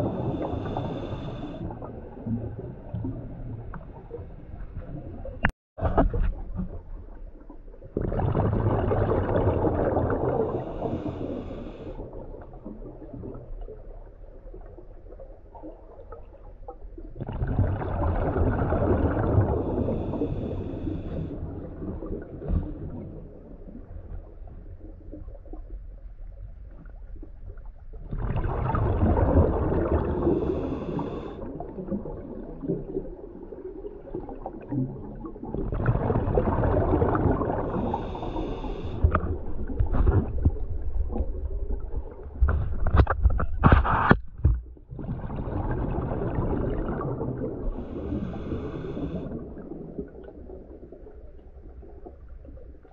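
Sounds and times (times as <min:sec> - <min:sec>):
diver's breath bubbling underwater: 0:00.0 - 0:03.2, 0:08.0 - 0:13.6, 0:17.2 - 0:23.2, 0:28.1 - 0:42.8, 0:44.9 - 0:51.0.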